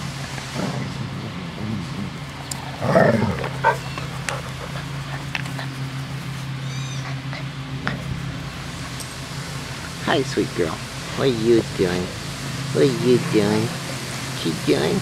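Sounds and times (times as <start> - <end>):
steady low hum: 0.0 - 15.0
puppy yelping: 3.2 - 5.0, 6.6 - 7.3.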